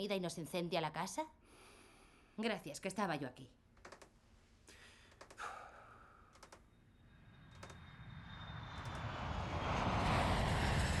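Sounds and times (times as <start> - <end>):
faint clicks: 5.1 - 5.5, 6.3 - 6.7.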